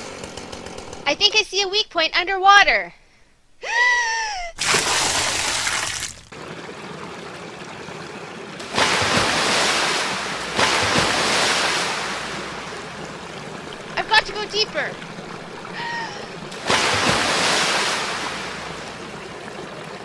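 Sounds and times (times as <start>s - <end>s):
creek water rushing around rocks: 4.6s - 20.0s
person exclaiming: 15.7s - 16.3s.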